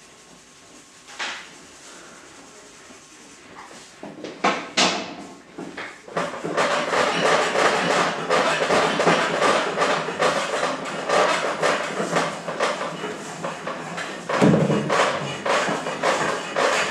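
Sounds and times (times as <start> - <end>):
workshop knocks and taps: 4.0 - 16.9.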